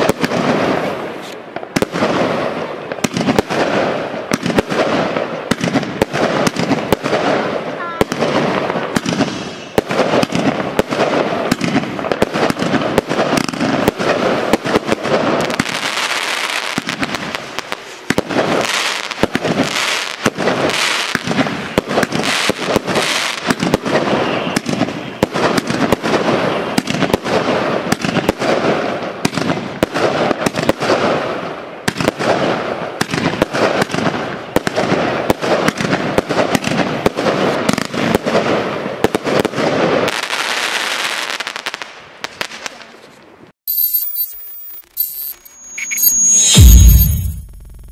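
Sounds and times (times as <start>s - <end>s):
firework cake firing with crackling: 0.0s - 46.7s.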